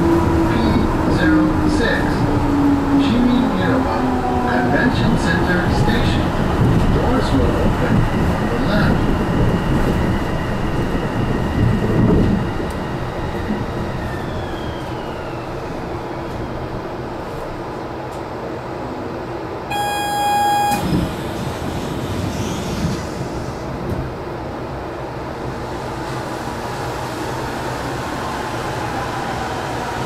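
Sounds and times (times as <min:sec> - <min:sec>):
train rolling rumble: 0:00.0 - 0:30.0
horn toot: 0:19.7 - 0:21.1.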